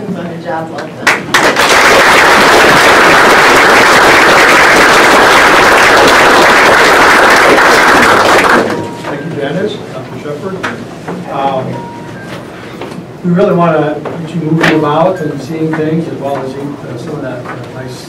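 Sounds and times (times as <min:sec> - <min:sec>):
audience applauding: 0:01.0 - 0:08.9.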